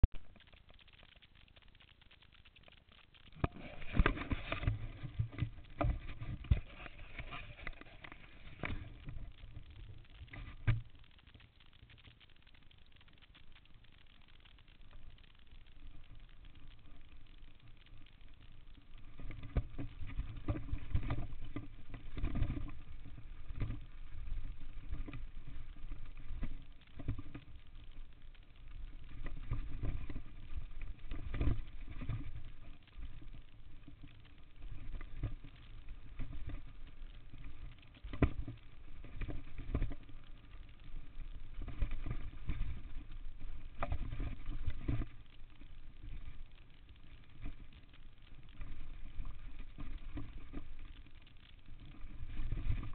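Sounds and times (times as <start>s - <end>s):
bike rolling on dirt trail: 3.3s - 10.0s.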